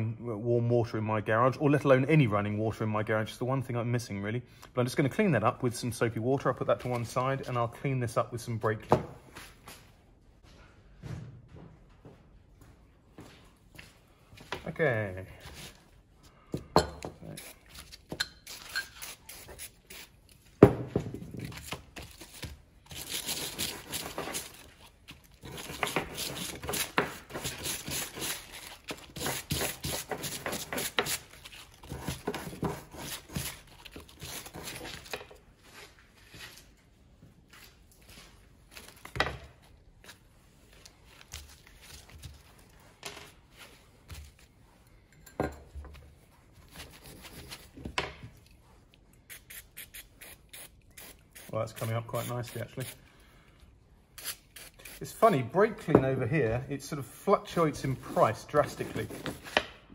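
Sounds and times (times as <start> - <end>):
rubbing and scraping: 22.3 - 36.7, 57.8 - 59.6
spray can spraying: 49.3 - 52.6.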